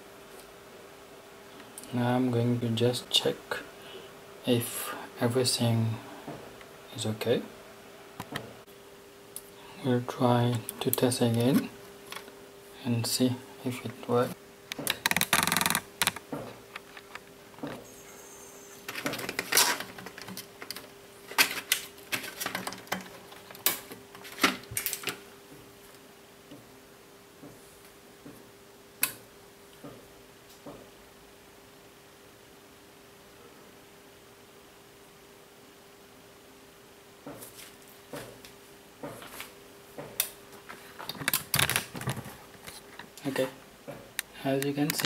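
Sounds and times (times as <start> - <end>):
faint steady hum: 0.0 - 45.0
faint steady tone: 17.8 - 19.1.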